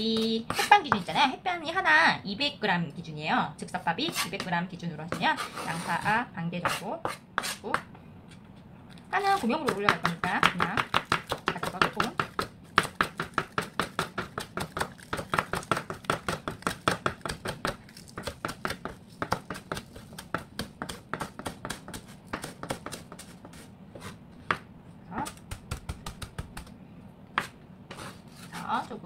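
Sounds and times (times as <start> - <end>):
knife chopping on cutting board: 9.3 - 26.7, 27.3 - 28.9.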